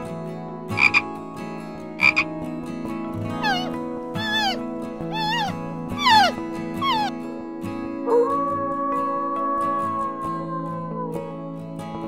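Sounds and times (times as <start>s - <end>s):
background music: 0.0s - 12.0s
frog croaking: 0.7s - 1.1s, 2.0s - 2.3s, 3.4s - 7.1s
meow-like animal call: 3.4s - 7.1s.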